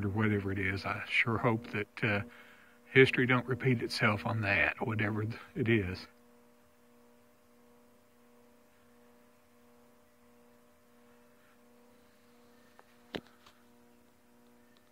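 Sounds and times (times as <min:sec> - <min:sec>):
transformer electrical hum: 0:00.0 - 0:14.9.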